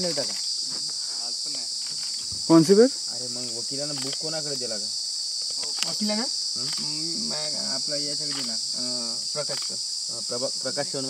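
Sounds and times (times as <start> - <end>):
high-pitched insect drone: 0.0 - 11.0
people talking: 5.6 - 11.0.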